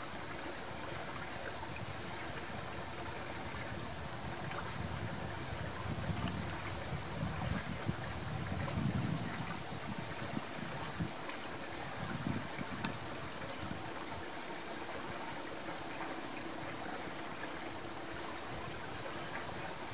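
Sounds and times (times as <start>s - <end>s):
river water flowing: 0.0s - 19.9s
faint click: 12.8s - 13.0s.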